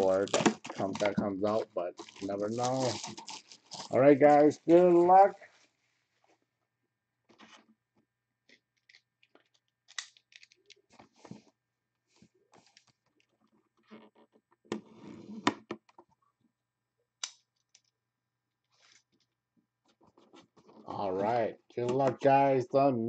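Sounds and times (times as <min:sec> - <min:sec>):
packaging rustling: 0:00.0 - 0:05.2.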